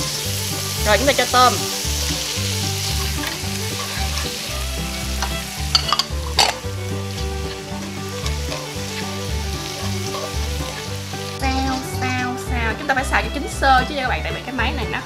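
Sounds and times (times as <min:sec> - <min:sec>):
food sizzling in frying pan: 0:00.0 - 0:14.8
chopsticks clicking against pan: 0:02.0 - 0:11.0.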